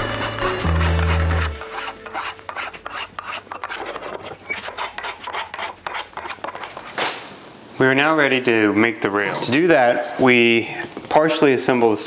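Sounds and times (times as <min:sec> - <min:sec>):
sanding block scratching wood: 0:00.0 - 0:06.9.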